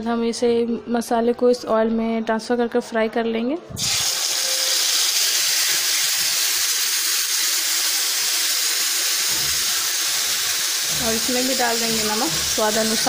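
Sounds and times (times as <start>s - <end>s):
paste sizzling in hot oil: 3.8s - 13.0s.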